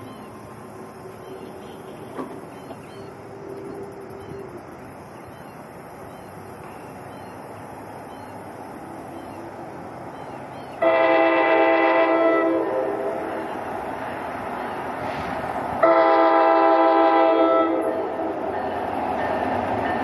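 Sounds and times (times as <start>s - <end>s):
train rumble: 0.0s - 20.0s
train air horn blast: 10.8s - 13.4s, 15.0s - 18.1s.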